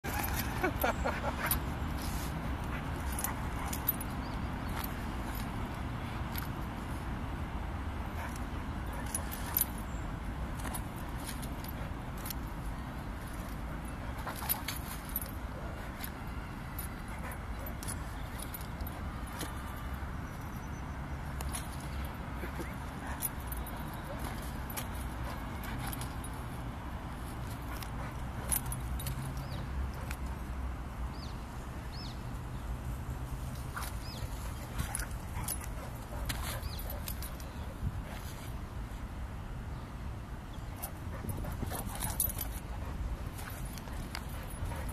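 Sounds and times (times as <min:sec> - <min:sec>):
metallic jingles and clicks: 0:00.0 - 0:31.3, 0:31.9 - 0:44.9.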